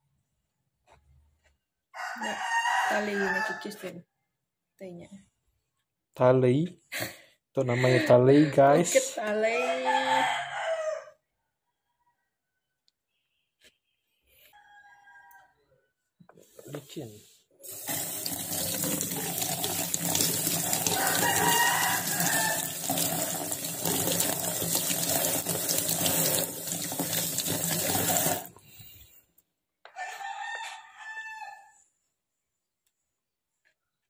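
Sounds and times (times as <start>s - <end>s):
rooster crowing: 1.9s - 3.8s, 7.7s - 12.8s, 14.5s - 15.9s, 20.6s - 23.4s, 29.9s - 31.9s
tap water running into sink: 17.6s - 28.5s
water splashing into colander: 17.7s - 28.5s.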